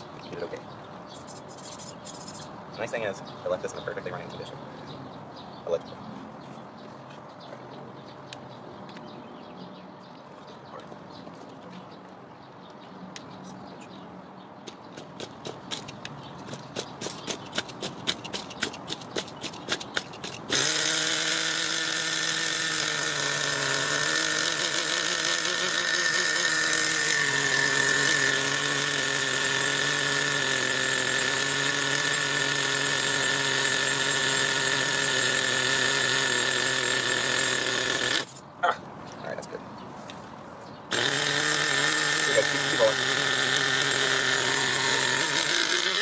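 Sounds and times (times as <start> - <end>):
small nitro engine idling: 16.5 - 38.4, 40.9 - 46.0.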